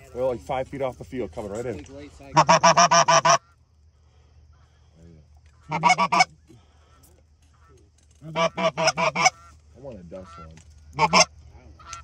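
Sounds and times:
goose honking: 2.3 - 3.6, 5.6 - 12.0.

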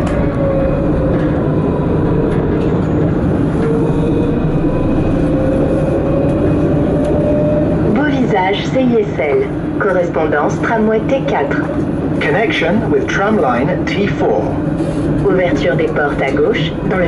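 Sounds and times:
tram motor whine: 0.0 - 17.0
tram rumbling on track: 0.0 - 17.0.

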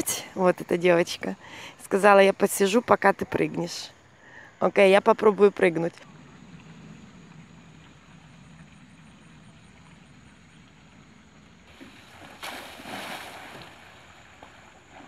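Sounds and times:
steady low hiss: 0.0 - 15.0
loud splash into pool: 11.7 - 15.0.

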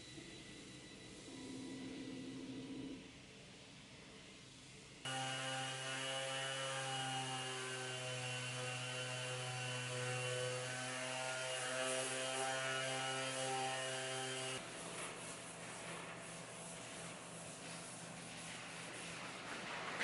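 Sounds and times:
orbital sander on wood: 5.1 - 16.0.

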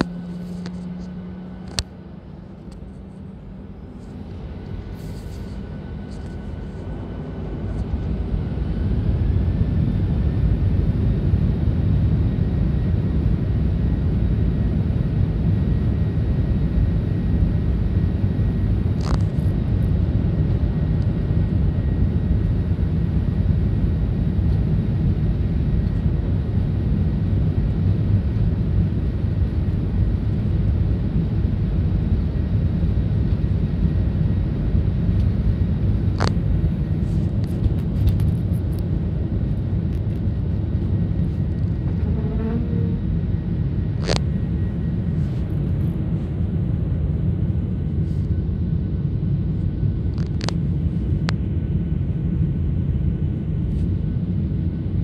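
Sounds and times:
jet engines rumbling in cabin: 0.0 - 55.0.

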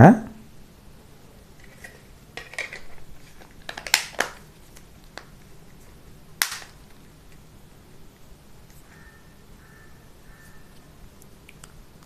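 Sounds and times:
plastic cover clicking and snapping: 2.4 - 4.4, 6.4 - 6.8.

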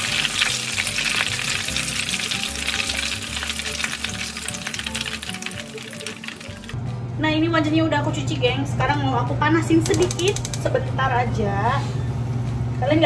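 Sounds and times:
chicken deep-frying in oil: 0.0 - 6.8.

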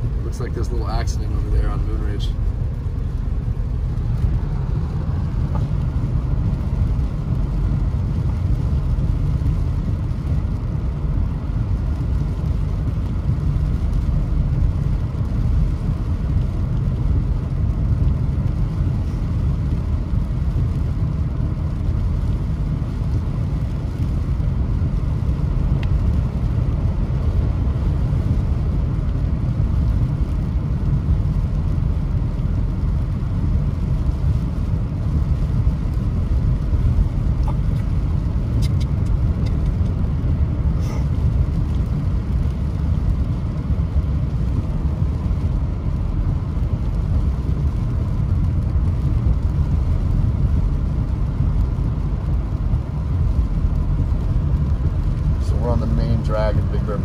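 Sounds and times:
car engine and tyres rumble: 0.0 - 57.0.

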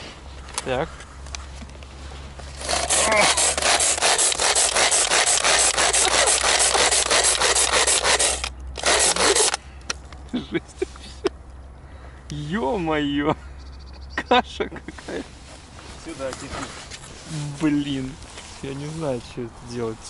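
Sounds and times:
pull-cord chopper blades rasping: 2.5 - 9.6.

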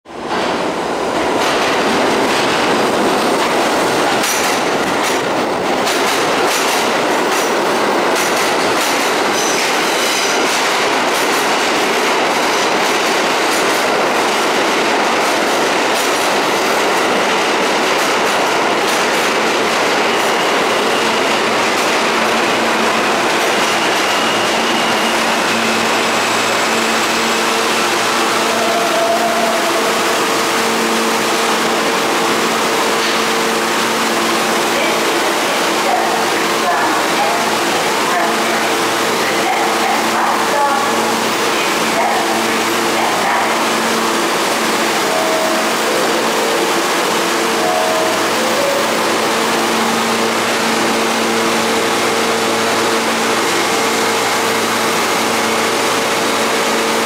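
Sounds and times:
subway train wheels rumbling: 0.0 - 57.0
train brake whine: 20.1 - 31.9.

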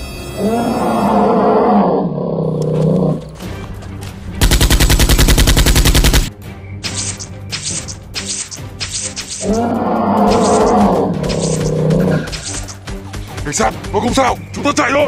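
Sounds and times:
creature roaring: 0.4 - 3.3, 9.4 - 12.3
automatic gunfire: 4.4 - 6.3.

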